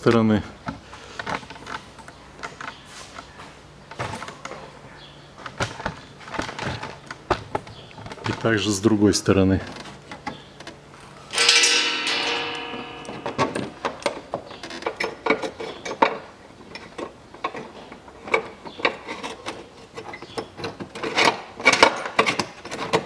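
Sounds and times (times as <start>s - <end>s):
metallic ring: 11.3s - 14.5s.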